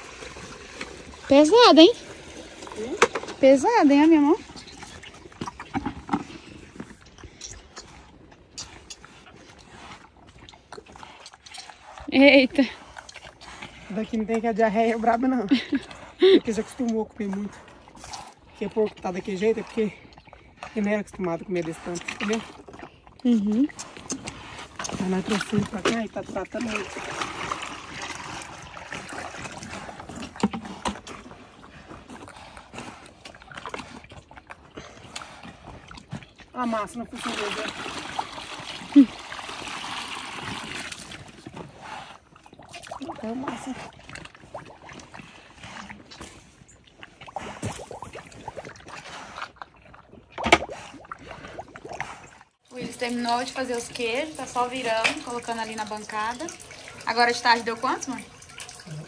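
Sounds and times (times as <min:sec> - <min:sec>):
liquid poured from a bucket: 0:00.0 - 0:13.6, 0:21.7 - 0:59.0
pigs slurping and smacking: 0:00.0 - 0:59.0.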